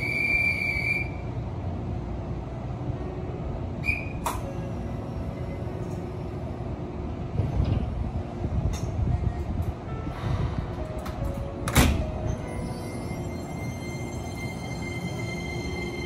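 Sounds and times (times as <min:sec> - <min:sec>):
train equipment low hum: 0:00.0 - 0:16.0
high steady tone: 0:12.4 - 0:16.0.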